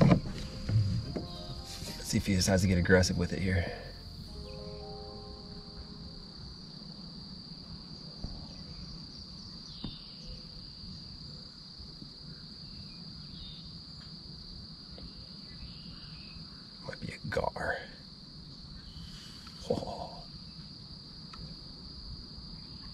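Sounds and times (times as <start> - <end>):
low background rumble: 0.0 - 8.0
insects chirping: 0.0 - 22.9.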